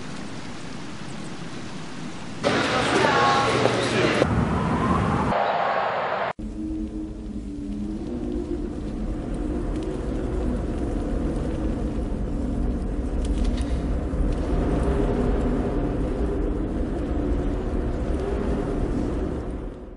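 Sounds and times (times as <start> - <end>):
low rumbling drone: 6.3 - 19.9.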